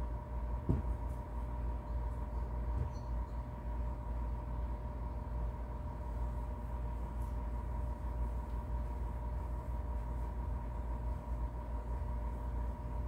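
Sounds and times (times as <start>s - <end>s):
faint hum: 0.0s - 13.0s
cloth rubbing inside cylinder: 4.8s - 13.0s.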